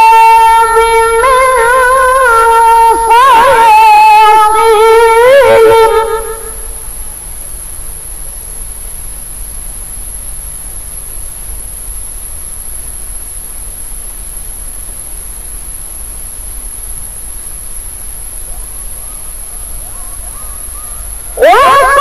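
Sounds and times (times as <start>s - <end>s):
background hiss and low hum: 0.0s - 22.0s
woman chanting faintly: 18.5s - 22.0s.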